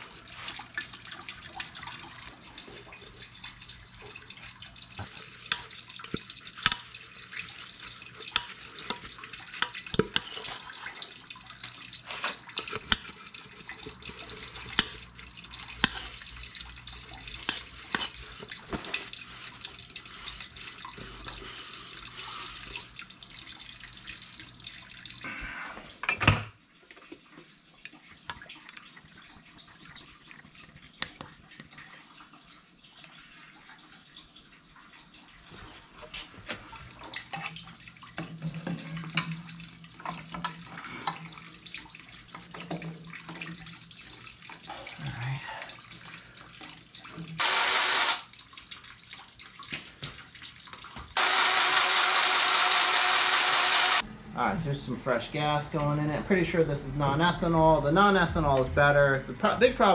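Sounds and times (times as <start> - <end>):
fuel trickling into plastic bucket: 0.0 - 25.3.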